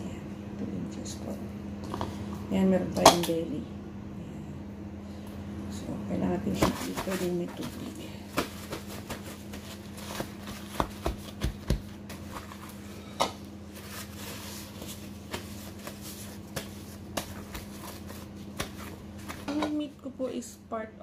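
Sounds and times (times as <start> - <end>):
steady low hum: 0.0 - 21.0
paper towels rustling: 6.4 - 19.9.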